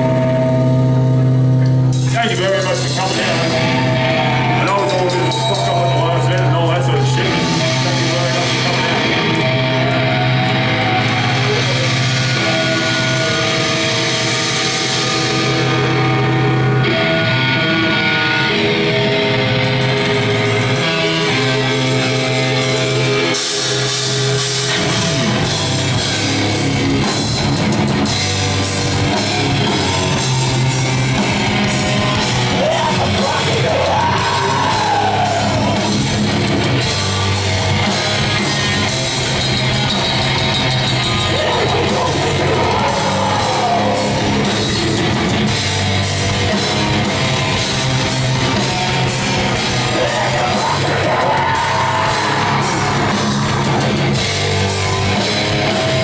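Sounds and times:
distorted electric guitars: 0:00.0 - 0:56.0
fast drumming on drum kit: 0:02.0 - 0:16.2, 0:20.0 - 0:56.0
harsh yelled vocals: 0:28.0 - 0:56.0
rising and falling wail: 0:28.6 - 0:37.3, 0:39.8 - 0:45.6, 0:47.2 - 0:56.0.

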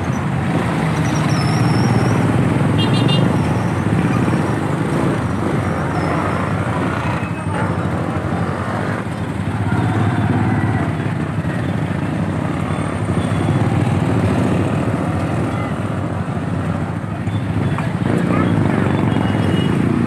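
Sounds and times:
motorcycle engine rumbling: 0:00.0 - 0:20.0
traffic engines and street noise: 0:00.0 - 0:20.0.

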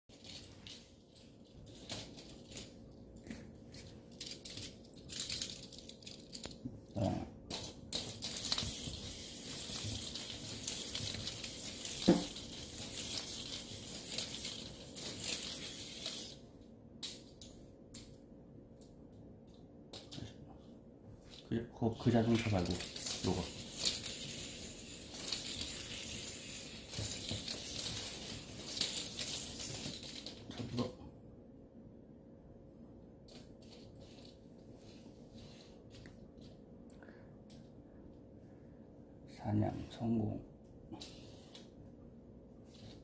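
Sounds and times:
toy scraping and rattling on floor: 0:00.1 - 0:06.6, 0:07.5 - 0:16.5, 0:22.1 - 0:30.9, 0:33.3 - 0:36.1, 0:42.7 - 0:43.0.

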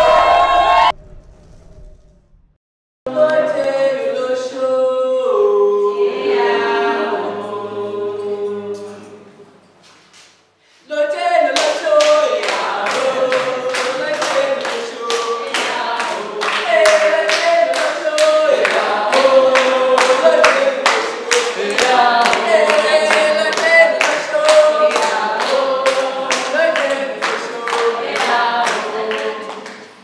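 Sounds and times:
group singing unaccompanied: 0:00.0 - 0:00.9, 0:03.1 - 0:09.4, 0:10.9 - 0:29.9
hands clapping a steady beat: 0:11.5 - 0:30.0.

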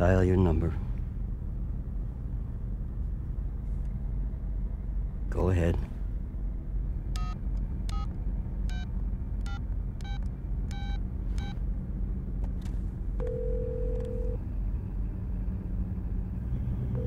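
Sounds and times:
low rumble: 0:00.0 - 0:17.0
touch-tone keypad beeps: 0:07.2 - 0:08.1, 0:09.4 - 0:11.6
steady phone line tone: 0:13.2 - 0:14.4.

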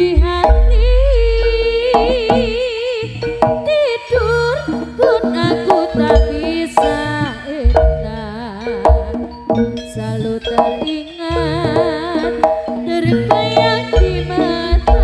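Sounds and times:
drumming: 0:00.0 - 0:03.9, 0:04.6 - 0:15.0
high lead melody with vibrato: 0:00.0 - 0:15.0
deep low boom: 0:07.7 - 0:08.3.

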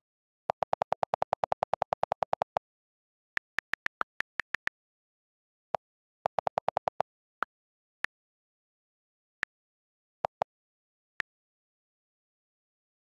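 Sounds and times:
on-screen keyboard clicks: 0:00.5 - 0:02.6, 0:06.2 - 0:07.0.

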